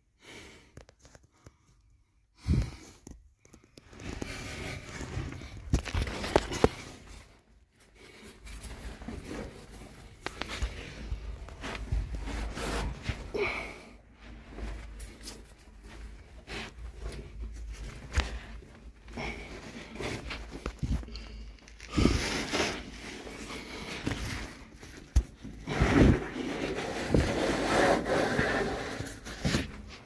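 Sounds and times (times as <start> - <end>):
clothing scraping against rock: 21.8 - 30.0.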